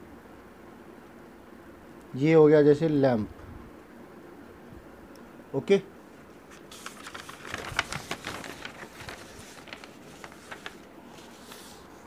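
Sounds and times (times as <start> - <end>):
paper pages rustling: 6.3 - 12.0.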